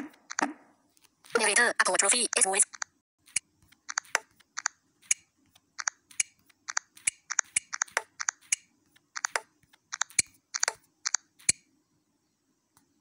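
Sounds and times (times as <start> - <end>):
smartphone clicks: 2.7 - 5.2, 5.8 - 11.6.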